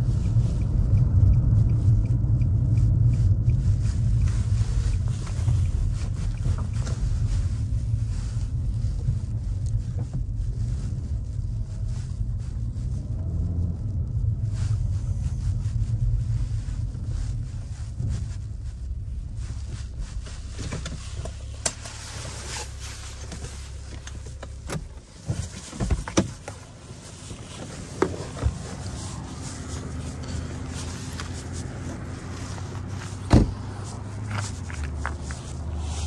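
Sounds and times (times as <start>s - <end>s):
car engine idling: 0.0s - 36.0s
car door shutting: 20.6s - 26.7s, 27.5s - 28.8s, 33.1s - 34.4s.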